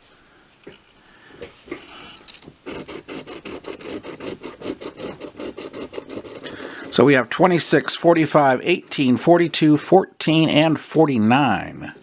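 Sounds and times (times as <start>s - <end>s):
scratch card scraping: 1.6s - 9.1s.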